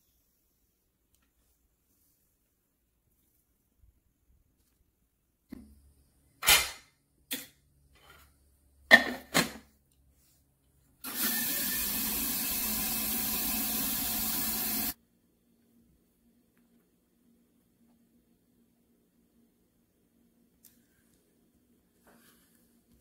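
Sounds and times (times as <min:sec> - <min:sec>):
tumbler polisher whirring: 0:11.1 - 0:15.0.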